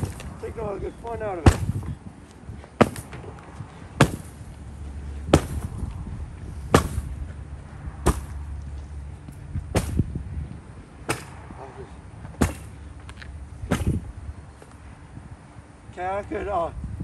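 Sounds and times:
sledgehammer striking a couch: 0:01.3 - 0:01.9, 0:02.8 - 0:03.2, 0:04.0 - 0:04.4, 0:05.3 - 0:05.8, 0:06.7 - 0:07.2, 0:08.0 - 0:08.4, 0:09.7 - 0:10.1, 0:11.0 - 0:11.4, 0:12.4 - 0:12.7, 0:13.7 - 0:14.0.

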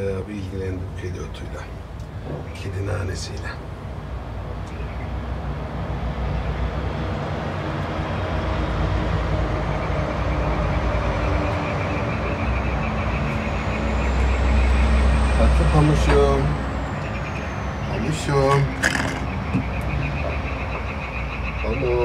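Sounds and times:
truck diesel engine rumble: 0:00.0 - 0:22.0.

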